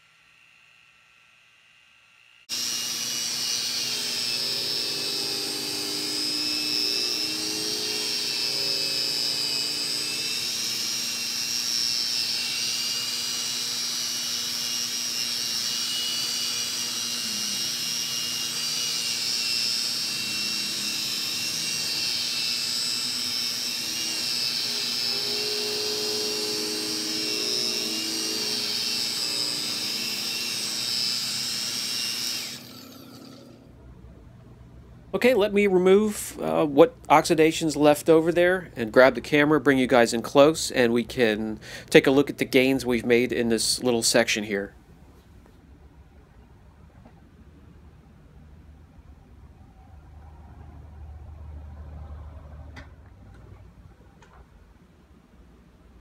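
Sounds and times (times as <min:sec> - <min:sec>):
rotary polisher whining: 0:00.0 - 0:33.7.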